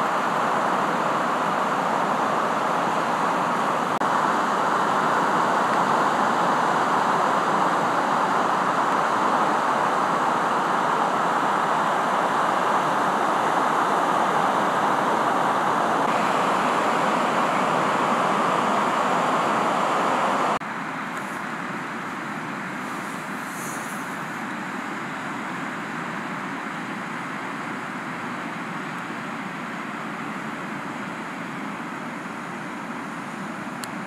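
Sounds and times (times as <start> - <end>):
waves breaking on a beach: 0.0 - 34.0.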